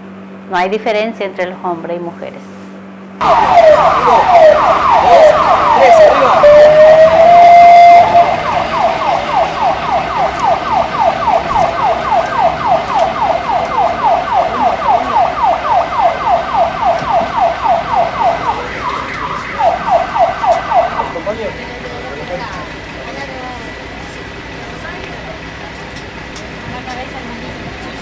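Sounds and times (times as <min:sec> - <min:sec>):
ambulance siren yelping: 0:03.2 - 0:24.0.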